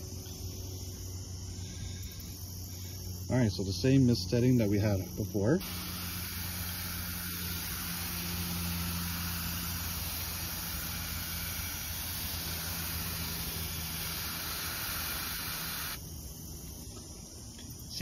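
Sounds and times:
low steady hum: 0.0 - 18.0
hose nozzle spraying mist: 5.6 - 16.0.

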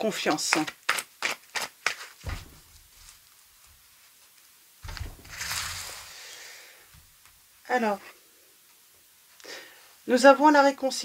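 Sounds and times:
hands bumping on table: 2.3 - 3.0.

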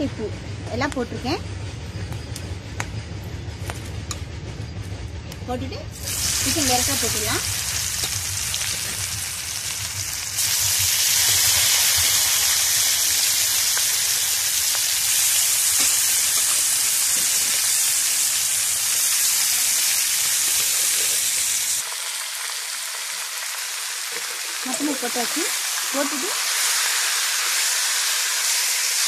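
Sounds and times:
oil sizzling with frying chicken: 5.9 - 29.0.

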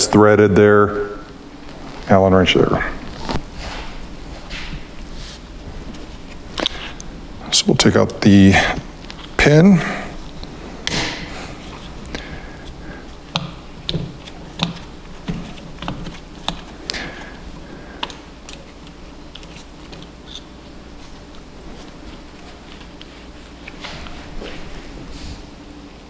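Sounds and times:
glove rustling: 1.6 - 7.4.

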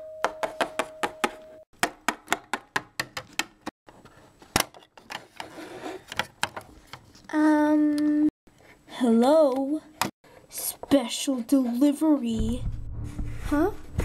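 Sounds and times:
doorbell chime: 0.0 - 1.6.

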